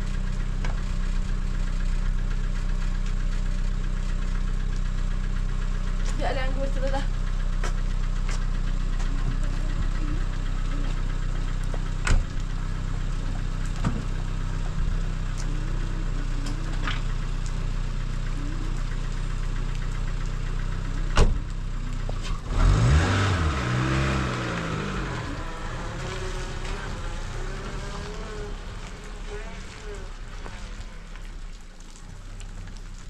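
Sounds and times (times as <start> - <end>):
engine humming steadily: 0.0 - 33.0
louder engine wavering in pitch: 6.0 - 31.5.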